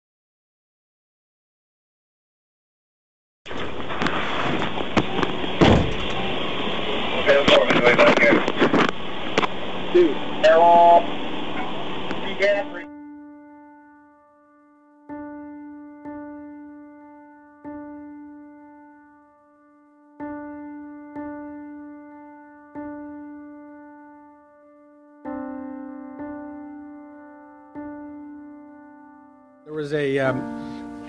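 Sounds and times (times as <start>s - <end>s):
piano chord: 9.5s - 31.0s
piano notes ringing: 9.6s - 31.0s.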